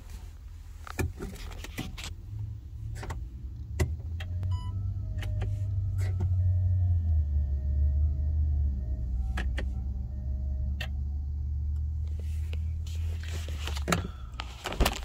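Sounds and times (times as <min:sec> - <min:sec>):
rustling handling noise: 0:00.0 - 0:02.1, 0:12.1 - 0:15.0
car low hum: 0:00.0 - 0:15.0.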